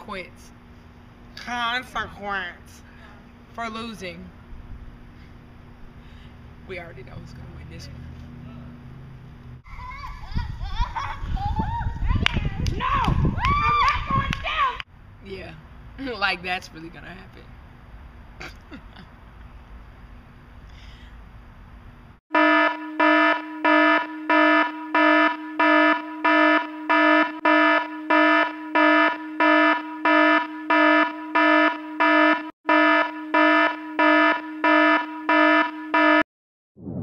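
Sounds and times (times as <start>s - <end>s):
electronic alarm beeping: 22.4s - 36.2s.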